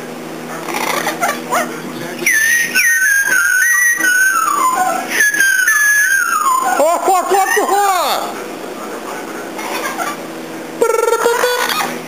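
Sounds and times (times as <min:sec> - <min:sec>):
parrot whistling: 0:02.2 - 0:07.8, 0:10.8 - 0:11.9.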